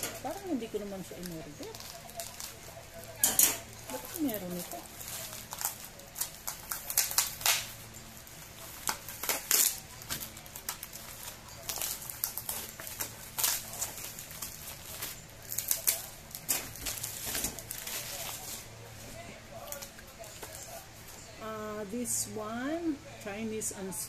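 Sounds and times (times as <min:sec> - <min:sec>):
plastic packaging crinkling: 0:00.0 - 0:21.4.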